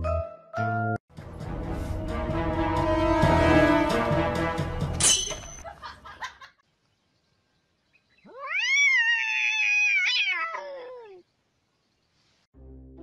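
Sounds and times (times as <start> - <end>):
background music with sharp hit: 1.1 - 5.2
cat yowling: 8.3 - 11.2.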